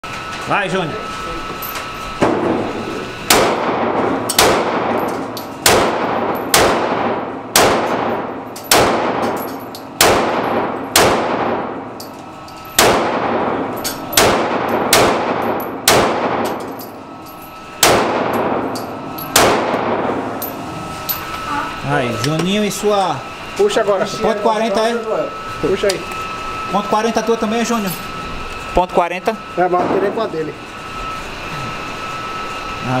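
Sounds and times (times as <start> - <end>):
pistol shots echoing indoors: 3.3 - 12.0, 12.7 - 16.8, 17.8 - 20.3.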